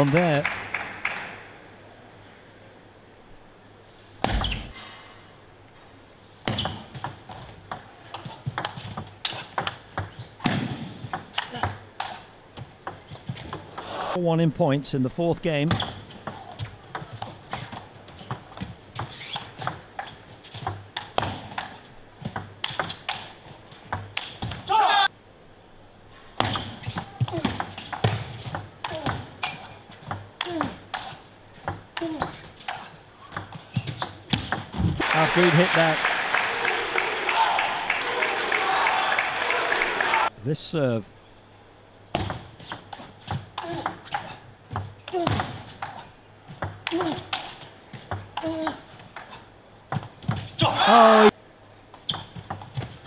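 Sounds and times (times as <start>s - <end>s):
shoes squeaking on floor: 15.7s - 20.7s, 32.2s - 34.8s.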